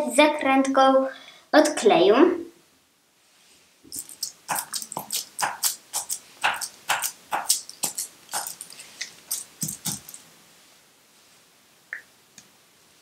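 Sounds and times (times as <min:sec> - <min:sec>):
aluminium foil crinkling: 0:03.9 - 0:10.2.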